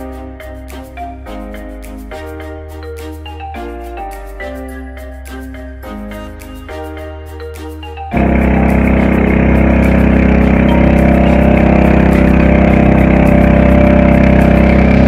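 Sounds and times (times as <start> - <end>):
boat engine running: 8.1 - 15.0.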